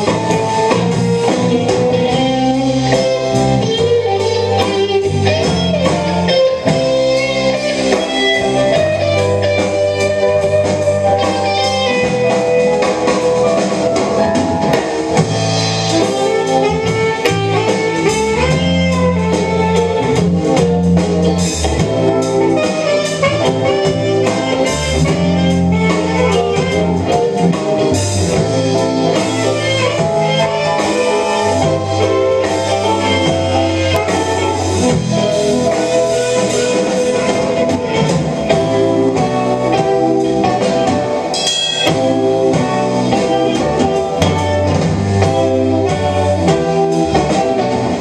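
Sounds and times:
drum kit with cymbals: 0:00.0 - 0:48.0
electric bass: 0:00.0 - 0:48.0
electric guitar: 0:00.0 - 0:48.0
saxophone holding long notes: 0:15.6 - 0:48.0.

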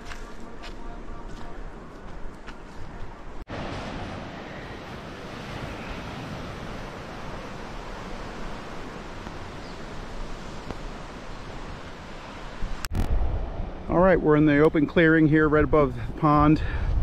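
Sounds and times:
wind: 0:00.0 - 0:17.0
sea surf: 0:03.5 - 0:13.0.

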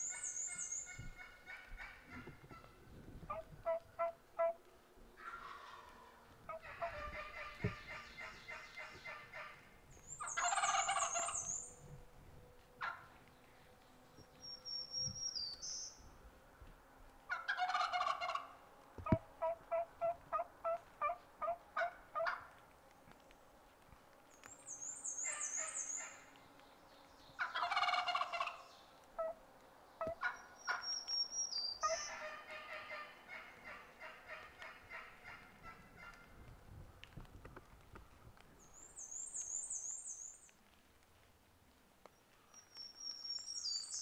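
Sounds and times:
turkey gobbling: 0:03.3 - 0:04.6, 0:05.2 - 0:09.6, 0:10.2 - 0:11.5, 0:12.8 - 0:13.1, 0:17.3 - 0:22.5, 0:27.4 - 0:29.4, 0:30.0 - 0:30.9, 0:31.8 - 0:36.2
turkey yelps: 0:05.2 - 0:09.5, 0:10.2 - 0:11.5, 0:12.8 - 0:13.1, 0:17.3 - 0:18.5, 0:19.4 - 0:22.5, 0:27.4 - 0:28.6, 0:30.0 - 0:30.9, 0:31.8 - 0:36.2
songbirds trilling: 0:10.0 - 0:11.8, 0:24.4 - 0:28.9.

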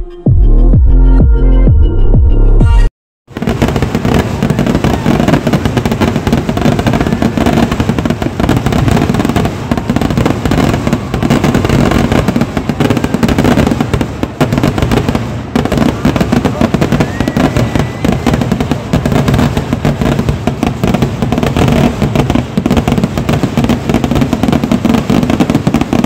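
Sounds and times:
electronic music: 0:00.0 - 0:02.9
firecracker bangs and crackling: 0:03.3 - 0:26.0.

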